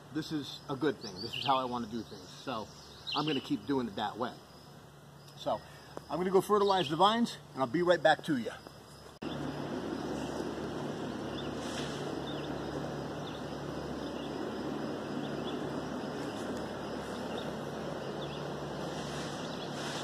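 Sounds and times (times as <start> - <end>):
faint low hum: 0.0 - 20.0
wind-like hiss: 9.2 - 20.0.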